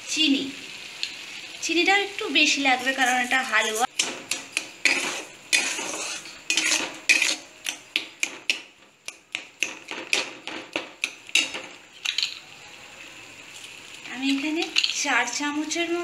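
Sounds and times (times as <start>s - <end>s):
fruit sizzling in oil: 0.0s - 16.0s
metal spatula scraping a pan: 2.8s - 8.6s.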